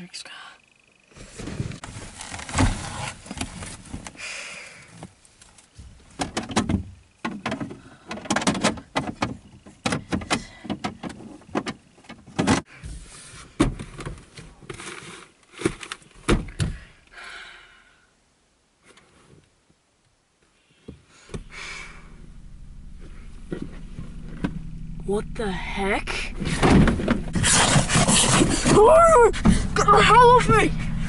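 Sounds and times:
rummaging clicks knocks and rustles: 0:05.0 - 0:12.7.

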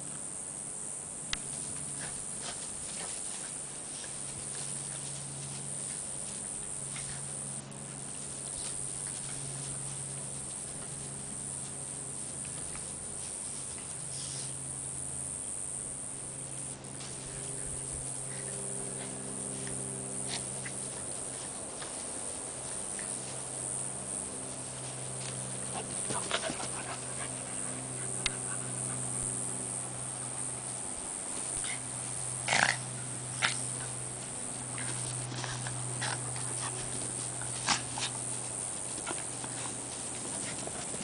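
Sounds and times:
steady low hum: 0:00.0 - 0:41.0
dogs scuffling in grass: 0:01.4 - 0:15.2, 0:16.2 - 0:41.0
dog panting: 0:25.2 - 0:29.4.

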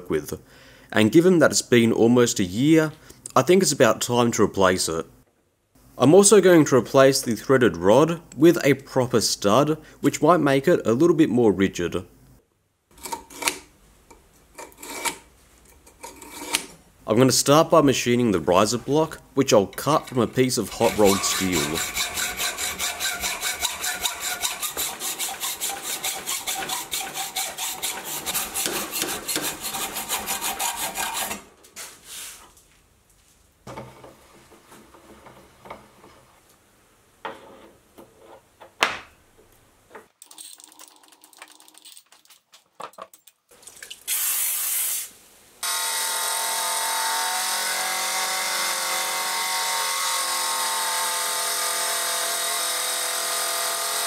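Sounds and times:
saw cutting steel bar: 0:14.6 - 0:15.2, 0:16.0 - 0:16.7, 0:19.8 - 0:31.5, 0:45.6 - 0:54.0.

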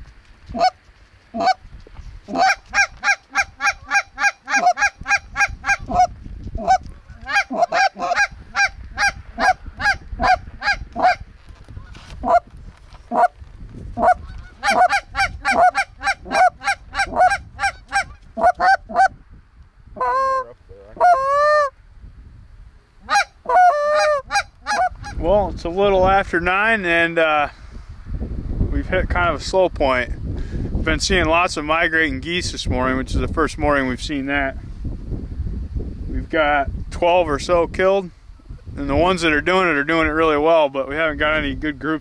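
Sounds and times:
goose honking: 0:00.5 - 0:01.6, 0:02.3 - 0:11.2, 0:11.8 - 0:12.4, 0:13.1 - 0:13.3, 0:14.0 - 0:19.1, 0:20.0 - 0:21.7, 0:23.0 - 0:25.2.

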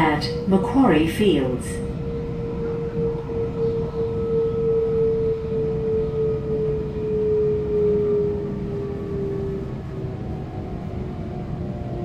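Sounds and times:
traction motor whine: 0:00.0 - 0:12.0
wheels rumbling on track: 0:00.0 - 0:12.0.

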